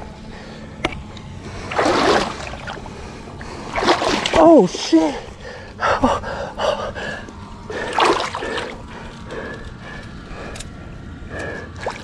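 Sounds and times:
water sloshing around legs: 0:01.4 - 0:05.3, 0:07.7 - 0:09.4, 0:11.7 - 0:12.0.

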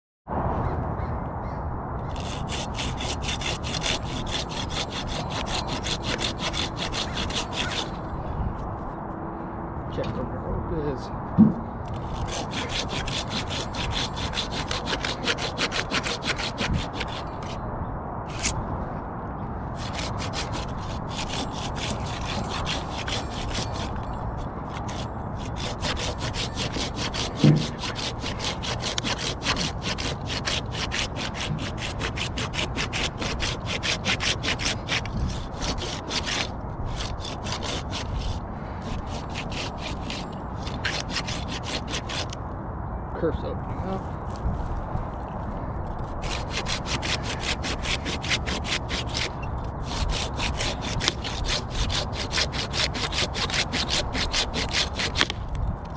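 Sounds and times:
hand saw cutting wood: 0:02.1 - 0:08.0, 0:11.9 - 0:17.6, 0:18.3 - 0:18.6, 0:19.8 - 0:42.4, 0:46.0 - 0:55.4
sharp knock: 0:11.4 - 0:11.7.

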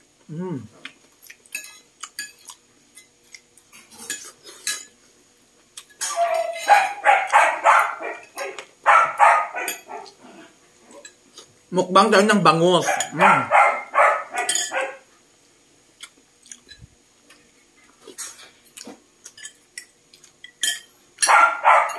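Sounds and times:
cutlery and dishes clinking: 0:01.5 - 0:05.0, 0:05.8 - 0:07.0, 0:09.6 - 0:10.0, 0:14.3 - 0:14.9, 0:18.1 - 0:21.9
dog barking: 0:06.1 - 0:10.2, 0:12.8 - 0:15.1, 0:21.2 - 0:21.9.

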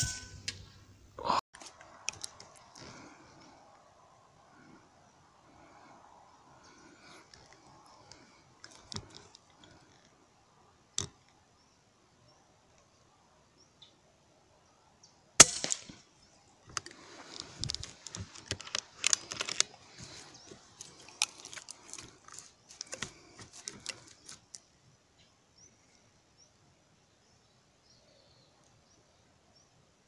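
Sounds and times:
clicks and rustling: 0:16.7 - 0:24.7.

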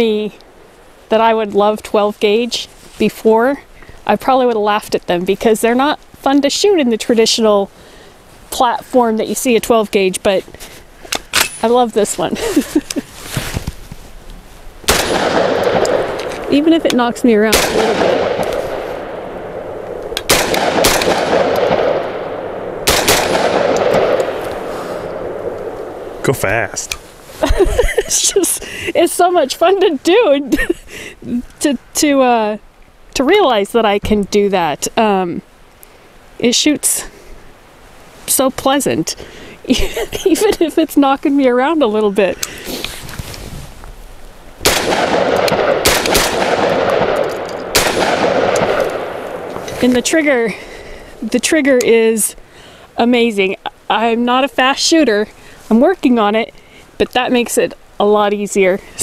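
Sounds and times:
shotgun shots echoing: 0:14.9 - 0:26.2, 0:44.6 - 0:49.7.

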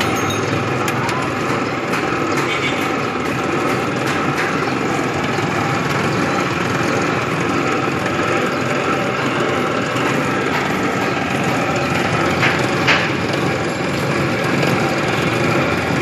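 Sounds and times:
cotton candy machine whirring: 0:00.0 - 0:16.0.

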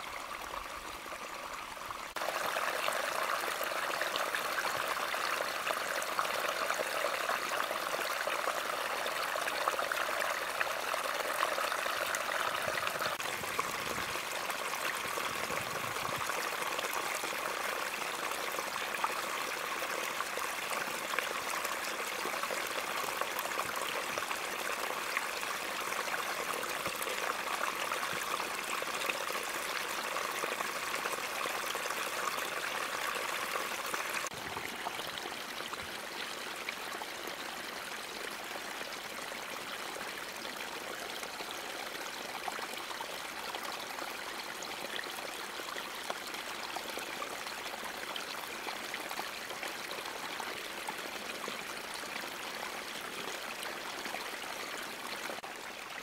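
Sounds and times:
brook trickling over rocks: 0:00.0 - 0:56.0.

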